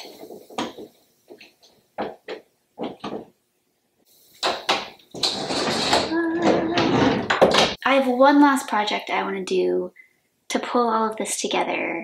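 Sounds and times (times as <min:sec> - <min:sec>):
closet doors knocking and clacking: 0:02.0 - 0:03.3, 0:04.4 - 0:07.8.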